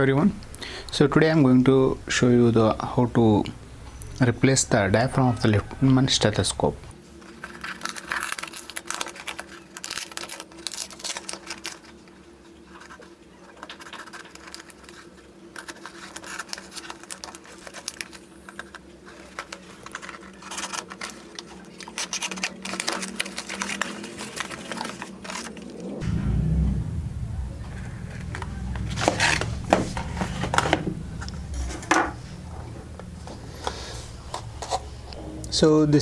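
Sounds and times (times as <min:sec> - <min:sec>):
faint steady hum: 0:00.0 - 0:36.0
plastic and cardboard ripping: 0:07.3 - 0:12.1, 0:12.7 - 0:26.0, 0:28.8 - 0:30.9.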